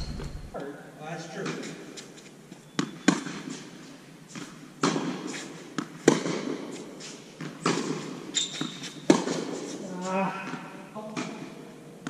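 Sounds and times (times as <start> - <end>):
racquets striking tennis ball: 4.3 - 9.8
tennis ball bouncing: 4.4 - 6.7, 7.4 - 9.6.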